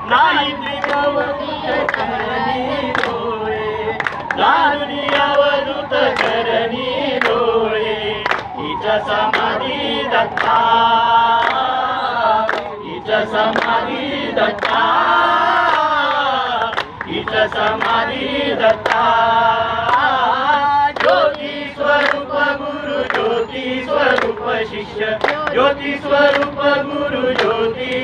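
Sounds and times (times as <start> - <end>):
group singing devotional song: 0.0 - 28.0
sharp handclaps: 0.8 - 1.1, 1.8 - 3.2, 4.0 - 5.5, 6.1 - 6.4, 8.2 - 8.5, 9.3 - 9.6, 10.3 - 10.6, 11.4 - 11.7, 12.4 - 12.8, 13.5 - 13.8, 14.5 - 14.9, 16.6 - 18.0, 18.7 - 19.1, 19.8 - 20.1, 20.9 - 22.3, 23.0 - 23.4, 24.1 - 24.5, 25.2 - 25.6, 26.2 - 26.5, 27.3 - 28.0.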